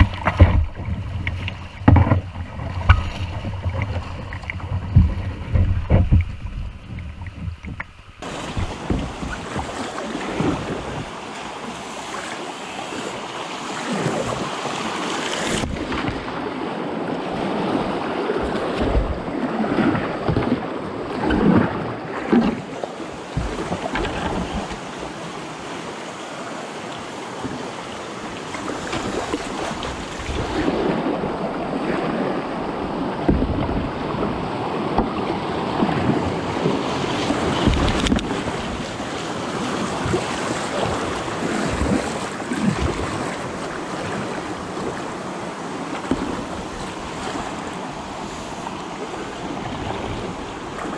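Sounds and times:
microphone buffeting: 0.0 - 9.8
paddle splashing: 0.0 - 50.9
river water rushing: 0.0 - 50.9.

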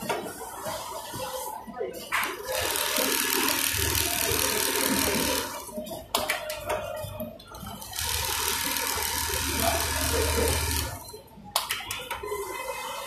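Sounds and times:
sewing machine running: 2.5 - 5.6, 8.0 - 11.0.

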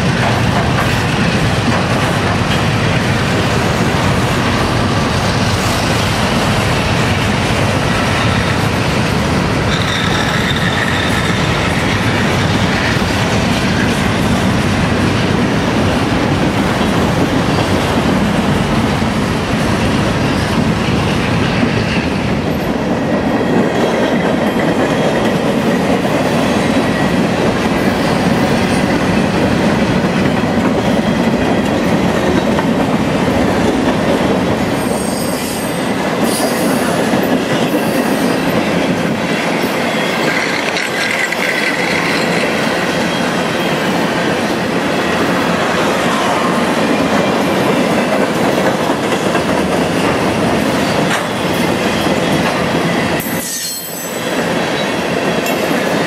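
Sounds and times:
train wheels clattering over rail joints: 0.0 - 35.4, 36.0 - 44.6, 47.0 - 56.0
high wheel squeal: 9.7 - 11.9.

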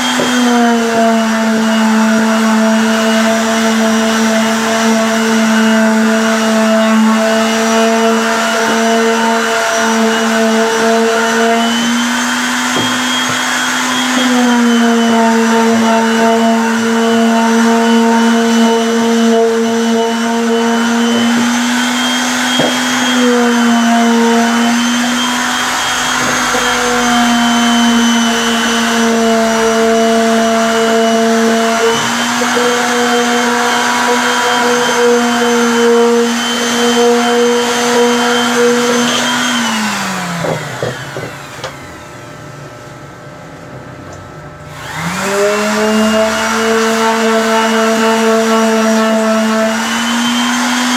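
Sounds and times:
orbital sander running on wood: 0.0 - 42.7, 44.6 - 50.9.

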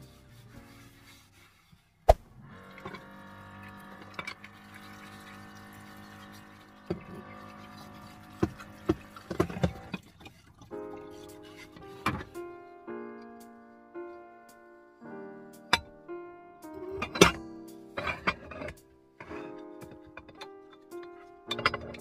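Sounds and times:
water pouring: 2.5 - 11.7.

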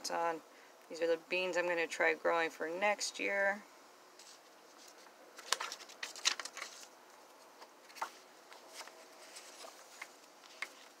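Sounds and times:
paper rustling: 4.2 - 11.0.

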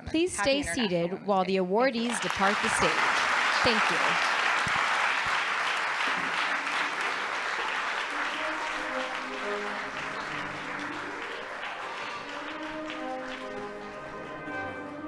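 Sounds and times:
audience applauding: 2.0 - 15.0
instrumental music with held notes: 7.7 - 15.0.

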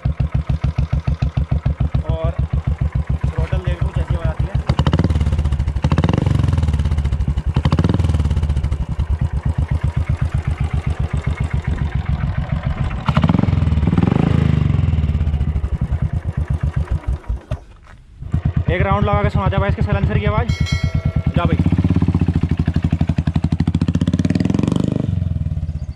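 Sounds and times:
motorcycle engine idling: 0.0 - 25.9
motorcycle engine revving: 0.0 - 25.9.

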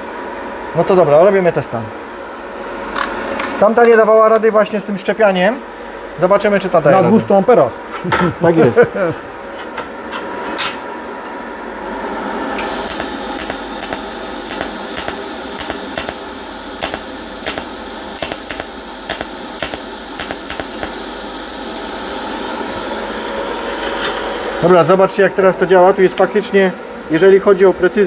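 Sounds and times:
sharp arc-strike clicks: 12.6 - 21.8
welder hiss: 12.6 - 24.9.

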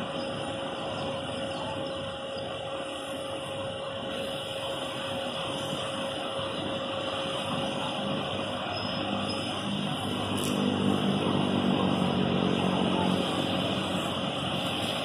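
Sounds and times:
coach diesel engine running: 4.2 - 15.0.

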